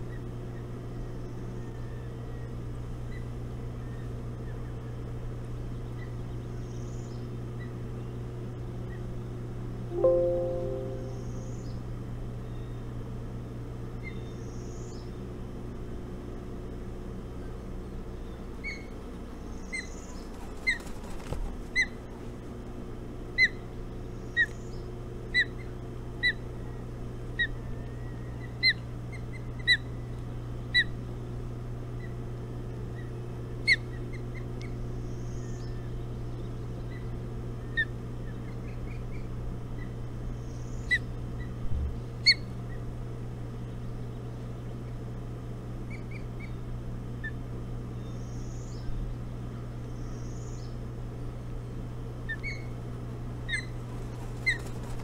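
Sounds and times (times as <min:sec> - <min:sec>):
bird calling with sharp high notes: 0:09.9 - 0:11.5
low hum: 0:09.9 - 0:11.7.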